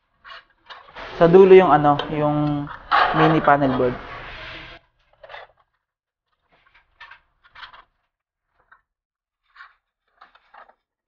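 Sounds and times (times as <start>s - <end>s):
metal panels scraping on glass: 0.3s - 5.4s.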